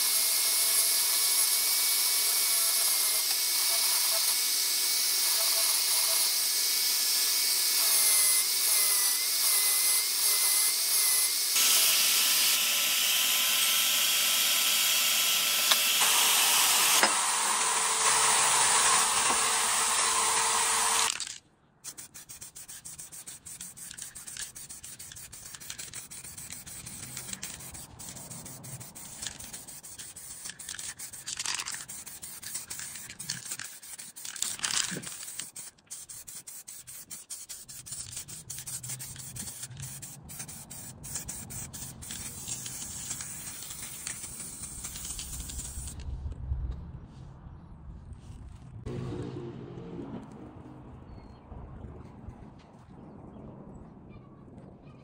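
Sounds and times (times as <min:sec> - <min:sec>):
rubbing and sanding metal: 0:21.8 - 0:46.0
scrapes and clicks: 0:29.0 - 0:35.9, 0:41.9 - 0:46.9.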